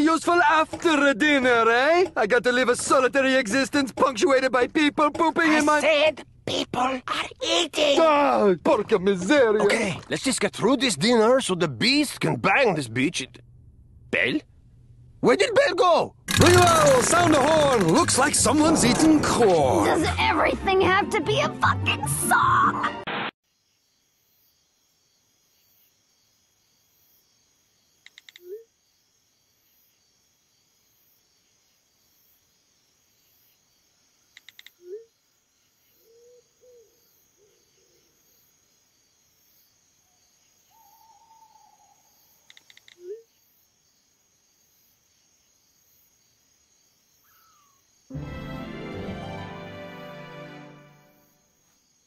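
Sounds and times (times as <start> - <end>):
insects hissing: 23.5 - 48.2, 50.8 - 52.0.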